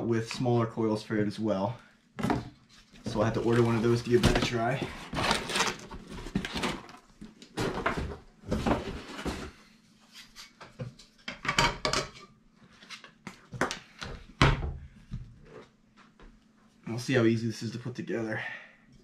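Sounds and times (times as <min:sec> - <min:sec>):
cardboard rustling: 0:02.7 - 0:09.6.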